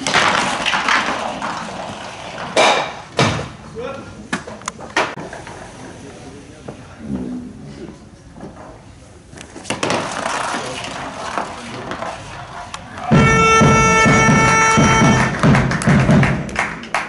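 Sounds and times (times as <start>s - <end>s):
runner gliding on pavement: 9.4s - 13.1s
loud horn note: 13.1s - 15.7s.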